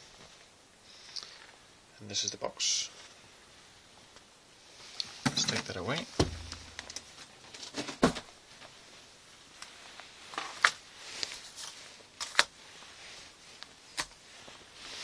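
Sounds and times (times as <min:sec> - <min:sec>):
handling clicks and knocks: 0:05.3 - 0:07.1.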